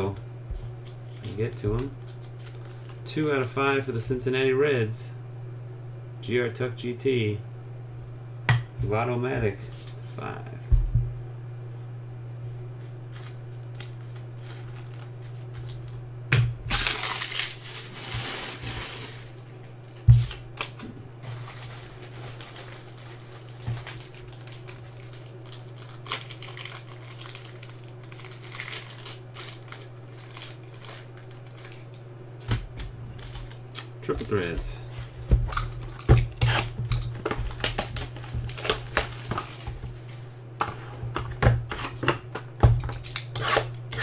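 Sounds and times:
low electrical hum: 0:00.0 - 0:44.0
plastic packaging crinkling: 0:00.8 - 0:03.1, 0:13.2 - 0:16.0, 0:16.7 - 0:32.0, 0:33.1 - 0:40.3.

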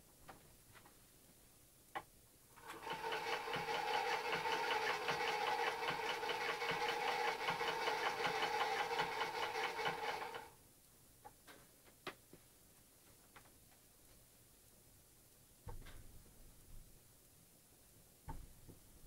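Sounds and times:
film projector clattering: 0:02.6 - 0:10.5
projector whirring: 0:02.6 - 0:10.6.

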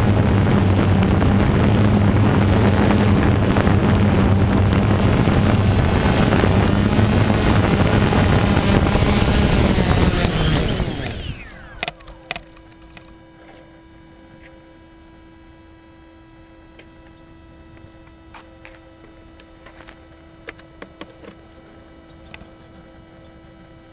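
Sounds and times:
faint electronic hum: 0:00.0 - 0:23.9
small clicks: 0:10.2 - 0:13.6.

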